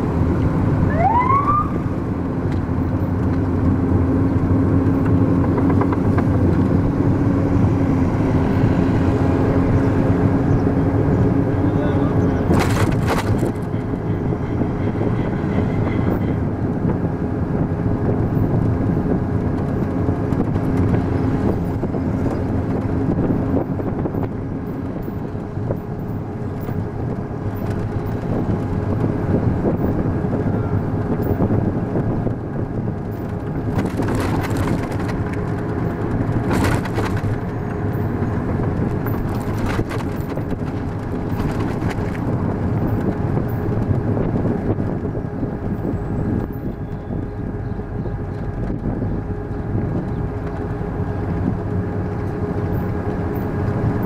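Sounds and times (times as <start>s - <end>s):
vehicle engine and road noise: 0.0s - 54.0s.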